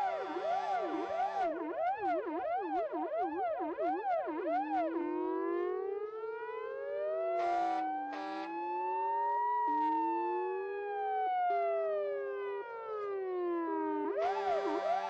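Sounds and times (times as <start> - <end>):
horn blasts: 0.0 - 1.5, 7.4 - 8.6, 14.2 - 15.0
fire engine sirens wailing: 0.0 - 15.0.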